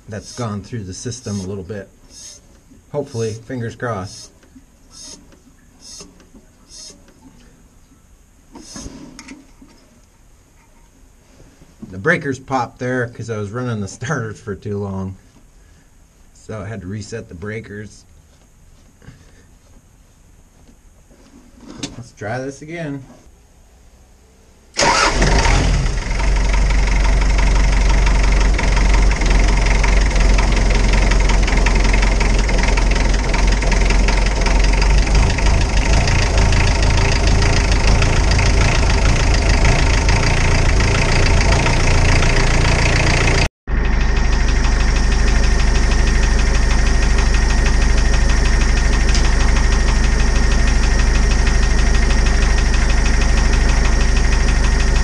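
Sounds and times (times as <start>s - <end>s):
diesel engine starting and running: 0.0s - 4.3s, 24.7s - 55.0s.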